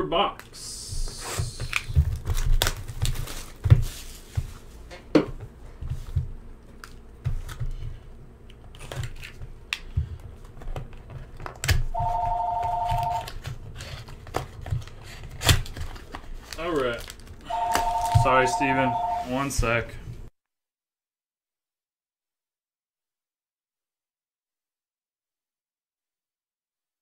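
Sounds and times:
two-tone electronic beep: 12.0s - 13.3s, 17.5s - 19.3s.

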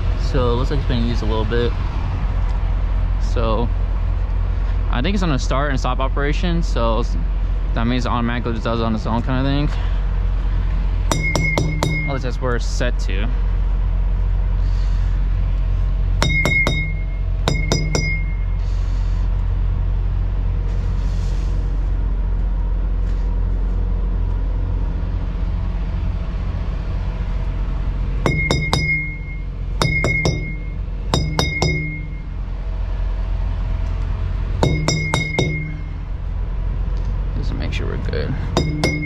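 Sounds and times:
steady low drone: 0.0s - 39.0s
tire thumper striking tires: 11.0s - 12.4s, 16.2s - 18.6s, 28.2s - 32.4s, 34.6s - 36.2s, 38.5s - 39.0s.

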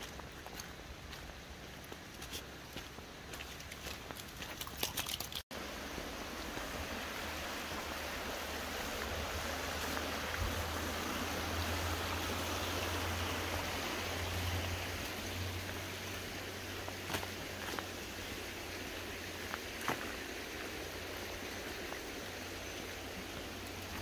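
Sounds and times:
footsteps on wet gravel: 0.0s - 5.4s, 15.0s - 20.8s, 23.2s - 24.0s
river rushing over rocks: 5.6s - 24.0s.

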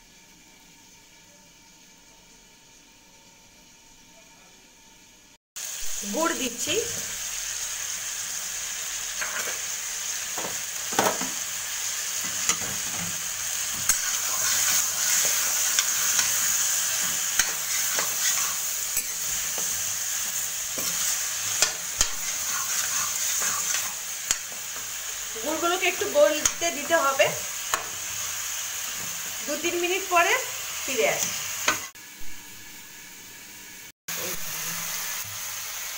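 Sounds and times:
food sizzling in a wok: 0.0s - 35.9s
spatula scraping a pan: 9.2s - 9.7s, 12.2s - 25.2s.

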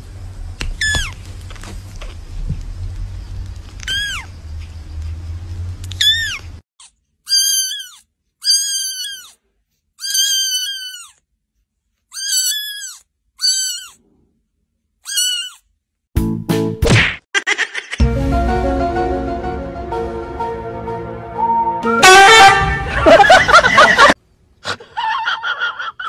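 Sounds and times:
kittens mewing: 3.8s - 4.3s, 6.0s - 6.5s, 7.3s - 9.4s, 10.0s - 11.2s, 12.1s - 14.0s, 15.0s - 15.7s.

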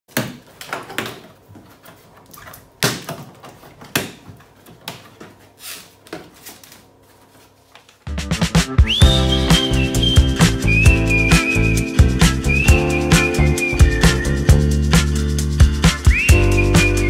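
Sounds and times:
music with whistled tune: 8.6s - 17.0s.

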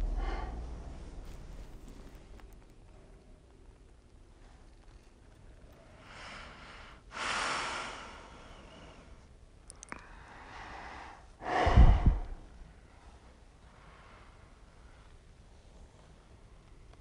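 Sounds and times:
woman breathing heavily: 0.0s - 1.3s, 5.9s - 9.3s, 9.9s - 15.1s.

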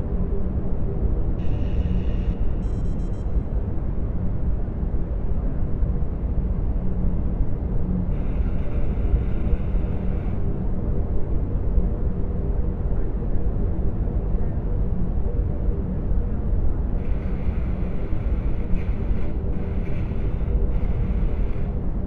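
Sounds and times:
deep starship rumble: 7.9s - 22.0s.

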